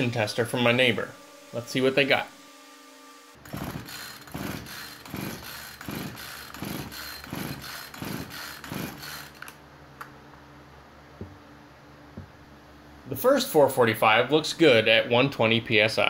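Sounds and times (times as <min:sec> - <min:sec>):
chainsaw engine cranking: 0:03.4 - 0:09.6.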